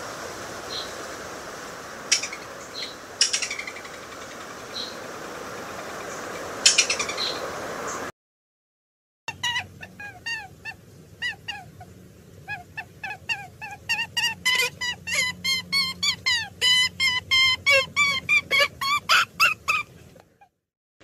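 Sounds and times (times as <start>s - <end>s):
high-pitched animal yips: 9.3s - 11.9s, 12.5s - 20.5s.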